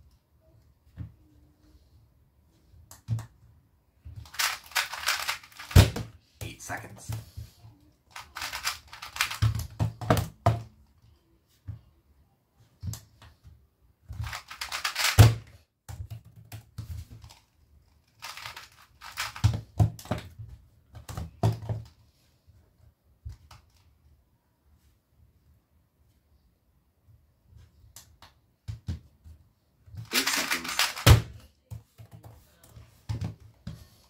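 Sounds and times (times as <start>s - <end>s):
puzzle cube plastic clicking: 4.2s - 6.0s, 8.1s - 10.3s, 14.2s - 15.4s, 17.2s - 19.6s, 30.0s - 31.3s.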